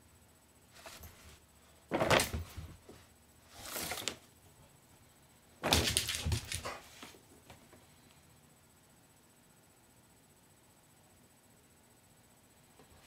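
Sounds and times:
paper bag rustling: 3.5s - 4.2s.

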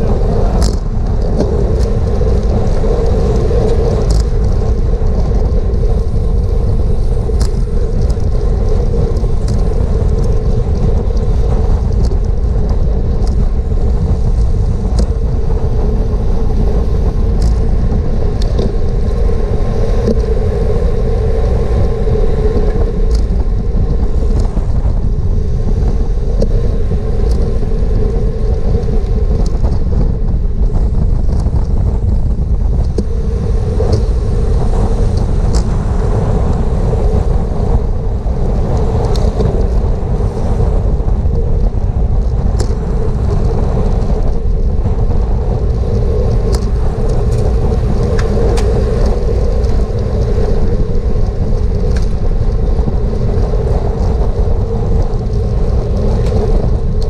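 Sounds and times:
road noise: 0.0s - 57.0s
wind noise: 0.0s - 57.0s.

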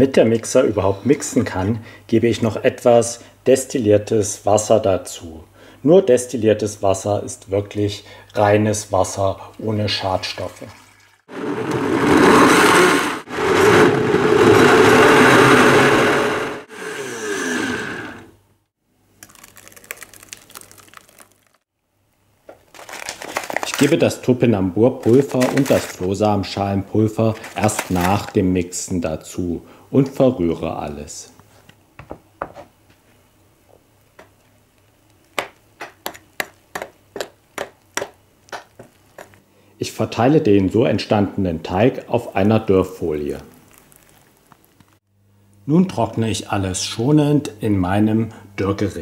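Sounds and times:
blender running: 11.3s - 18.4s
wet scraping and clicks: 19.2s - 21.6s, 34.0s - 39.4s, 43.4s - 45.0s.

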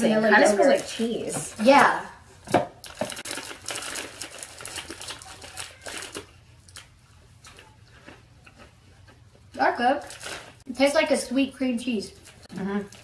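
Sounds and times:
snack bag crinkling: 2.8s - 8.7s, 10.0s - 10.6s.

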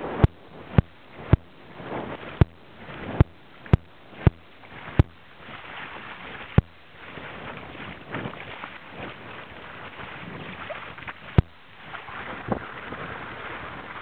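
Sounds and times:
water rushing along boat hull: 0.0s - 14.0s
sharp loud knocks: 3.2s - 5.2s.

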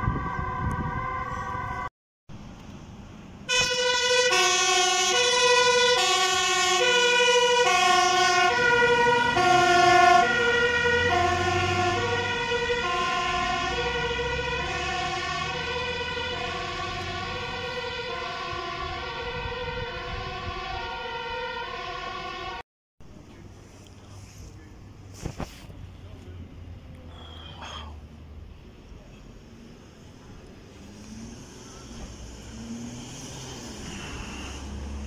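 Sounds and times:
two-tone fire engine siren: 0.0s - 1.9s, 3.5s - 22.6s, 31.2s - 35.0s
truck rumble: 0.0s - 35.0s.

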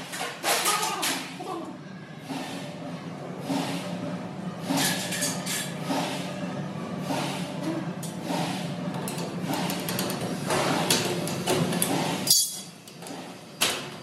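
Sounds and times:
metal rack parts clinking: 12.3s - 12.8s.

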